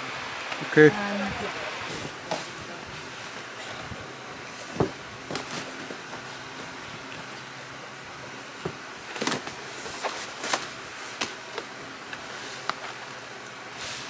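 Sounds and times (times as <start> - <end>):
steady background noise: 0.0 - 14.0.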